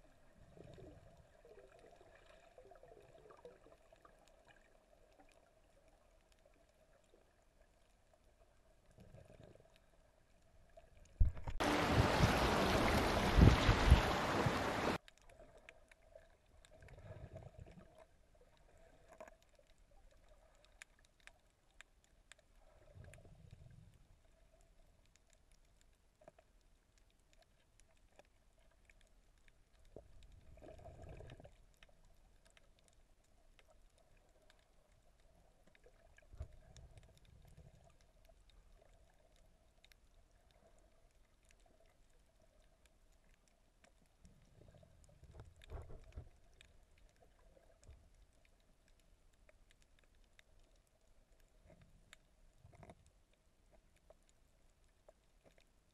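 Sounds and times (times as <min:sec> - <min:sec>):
faint steady hum: 0:00.0 - 0:55.9
muffled underwater swishes: 0:08.8 - 0:19.6.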